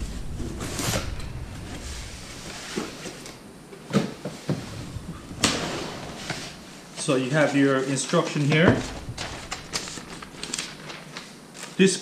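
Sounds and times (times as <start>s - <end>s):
plastic rustling: 4.5s - 12.0s.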